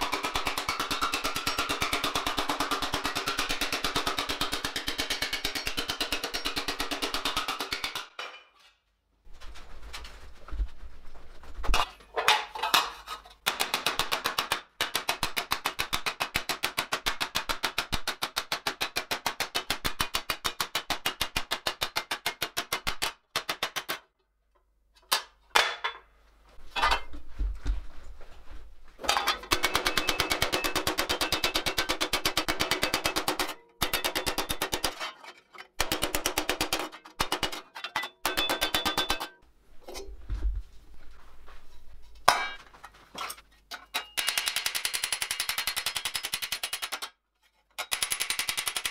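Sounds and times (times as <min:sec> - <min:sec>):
metal knocks and clanks: 0:26.6 - 0:27.3.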